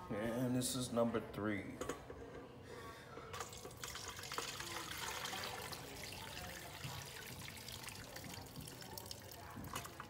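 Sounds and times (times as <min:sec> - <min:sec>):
liquid pouring through strainer: 0:03.4 - 0:10.0.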